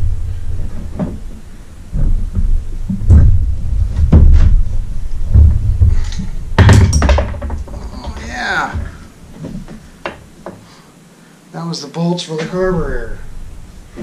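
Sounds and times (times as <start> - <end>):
knocks and clunks: 0.0 - 10.6
low uneven rumbling: 0.0 - 10.8, 12.4 - 14.0.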